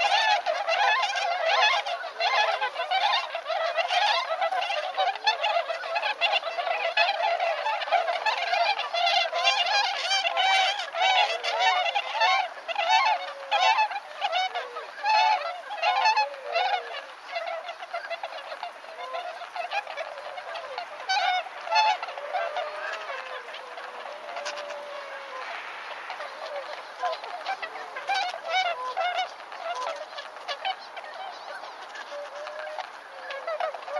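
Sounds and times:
swans honking: 0.0s - 33.9s.

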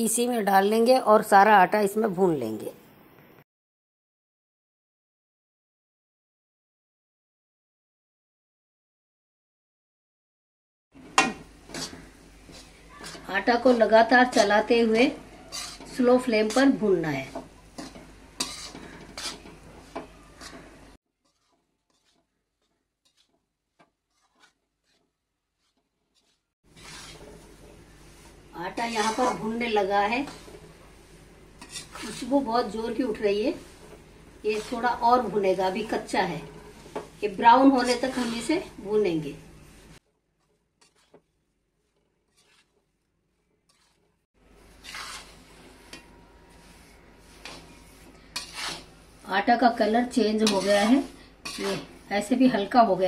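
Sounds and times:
spatula scraping and stirring: 11.0s - 53.0s.

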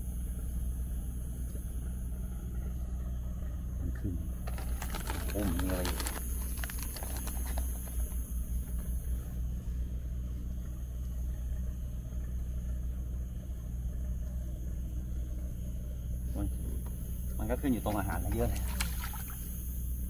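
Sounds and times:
engine humming: 0.0s - 20.0s
plastic rustles and clicks: 4.4s - 8.2s.

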